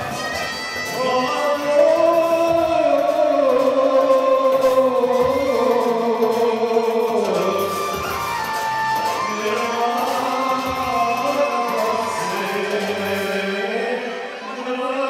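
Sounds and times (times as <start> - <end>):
instrumental backing: 0.0 - 14.9
man singing a long note: 0.9 - 8.0, 9.2 - 15.0.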